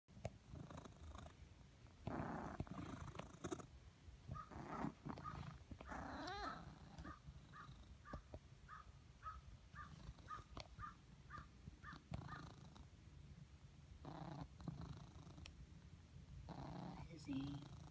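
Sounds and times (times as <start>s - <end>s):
cat purring: 0.2s - 13.0s, 14.0s - 15.8s, 16.4s - 17.9s
high squeak in purr: 4.3s - 7.7s.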